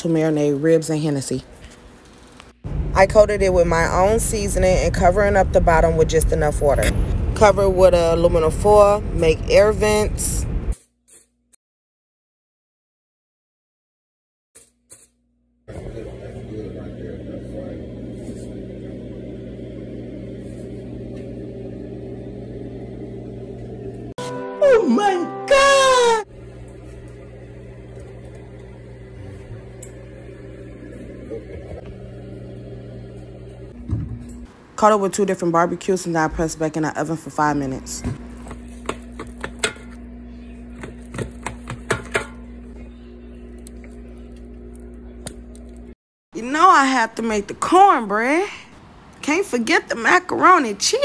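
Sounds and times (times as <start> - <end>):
low machine hum: 2.7 - 10.7, 15.7 - 24.2, 25.6 - 35.2, 35.8 - 48.5
steady hum: 26.2 - 34.5.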